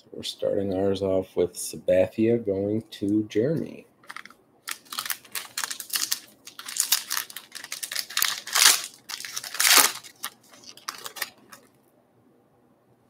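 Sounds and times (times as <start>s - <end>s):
plastic wrapper crinkling: 4.0s - 11.8s.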